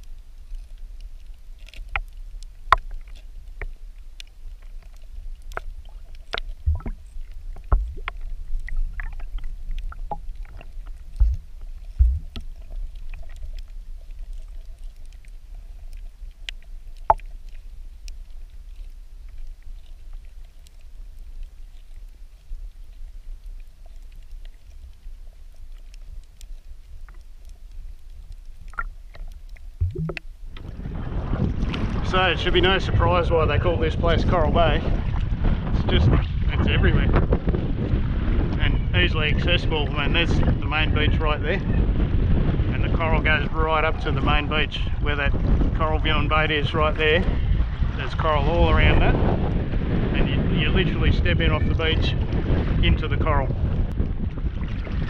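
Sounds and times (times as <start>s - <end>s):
sharp underwater clicks: 0.0s - 30.7s
low underwater rumble: 0.0s - 55.0s.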